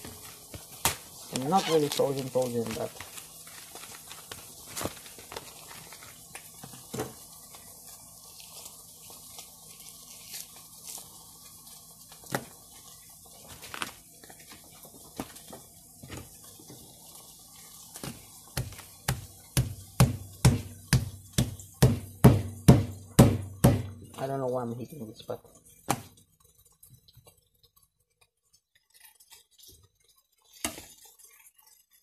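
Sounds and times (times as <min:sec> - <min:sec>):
plastic bag rustling: 0:00.0 - 0:11.4, 0:13.3 - 0:15.5.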